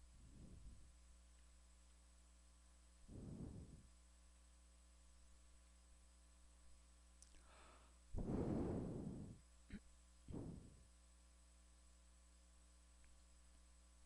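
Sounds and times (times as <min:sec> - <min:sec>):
faint steady hum: 0:00.0 - 0:14.0
heavy breath close to microphone: 0:03.1 - 0:03.9, 0:07.4 - 0:09.4, 0:10.3 - 0:10.8.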